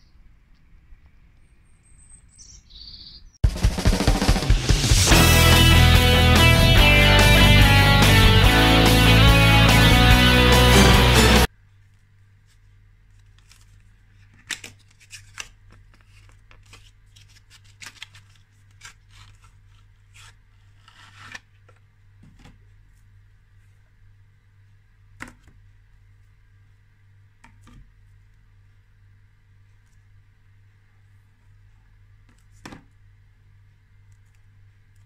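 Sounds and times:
faint steady hum: 11.4 - 35.0.

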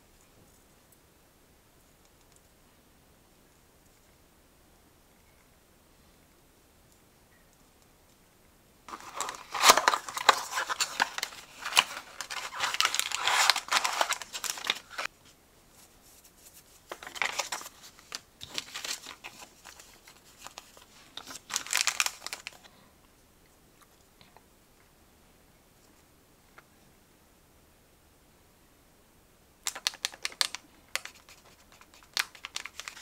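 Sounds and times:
plastic and paper crinkling: 8.9 - 15.1, 15.8 - 22.7, 29.6 - 33.0.

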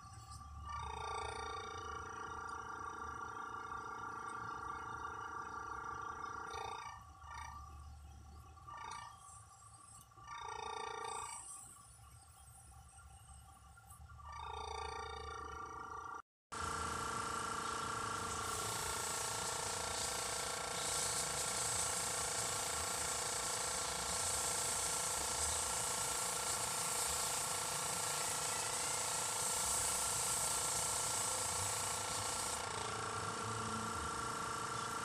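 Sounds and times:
air compressor hum: 14.4 - 35.0
airbrush spraying hiss: 18.1 - 34.3.

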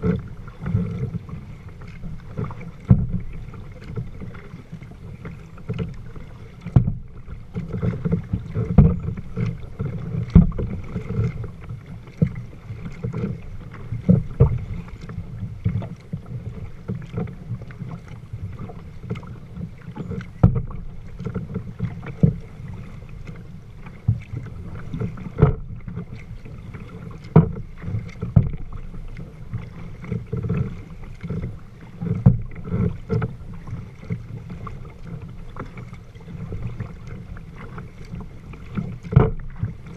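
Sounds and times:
water splashing against kayak hull: 0.0 - 39.9.

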